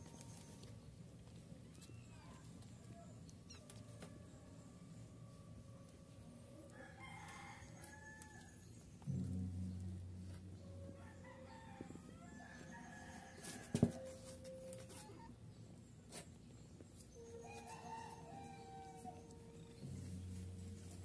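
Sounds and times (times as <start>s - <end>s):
faint rooster crowing: 3.5s - 8.7s, 10.7s - 15.3s, 17.2s - 21.0s.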